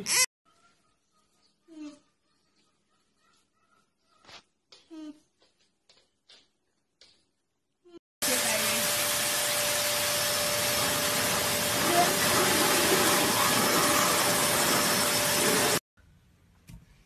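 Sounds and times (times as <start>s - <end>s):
blower dryer air rush: 8.2s - 15.8s.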